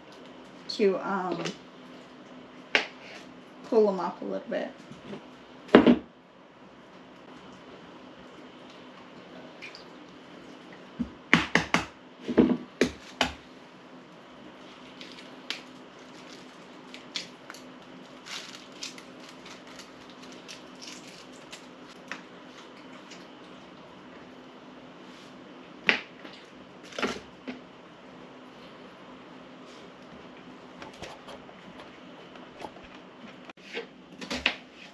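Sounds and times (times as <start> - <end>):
eggshells cracking and peeling: 14.8 - 22.2.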